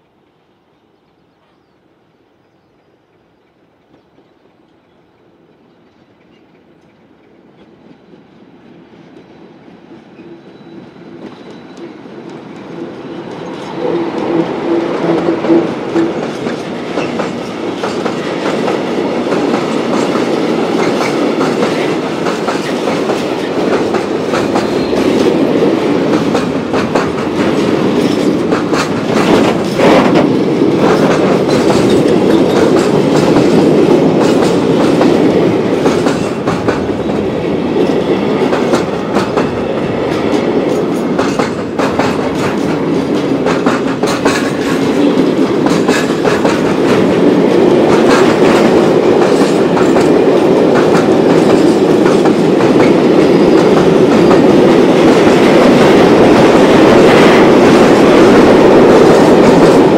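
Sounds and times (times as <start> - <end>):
diesel locomotive passing: 2.5 - 59.9
freight train wheels rumbling: 2.6 - 59.9
wheels clacking over rail joints: 3.4 - 59.9.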